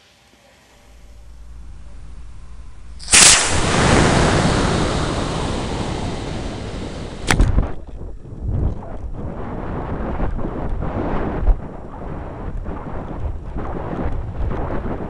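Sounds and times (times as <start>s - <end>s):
rushing hiss of exhaust: 1.1s - 7.3s
rocket motor igniting blast: 1.2s - 7.7s
sharp crack: 1.2s - 15.0s.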